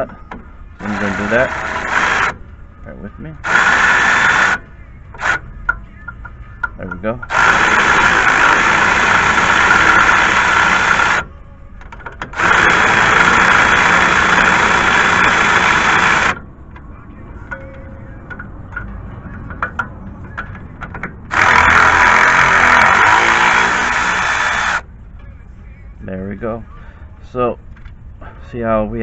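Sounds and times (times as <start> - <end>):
electric ratchet whirring: 0.8 - 2.4, 3.4 - 4.6, 7.3 - 11.3, 12.3 - 16.4, 21.3 - 24.8.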